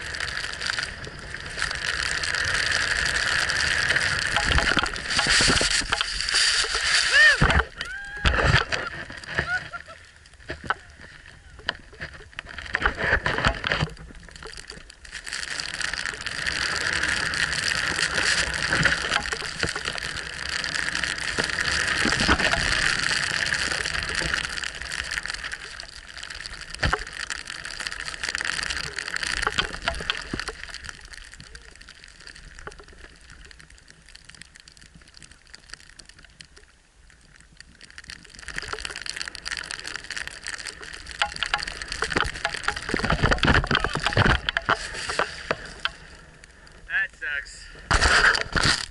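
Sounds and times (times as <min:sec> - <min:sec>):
snow hissing under skis: 0:05.0 - 0:07.4.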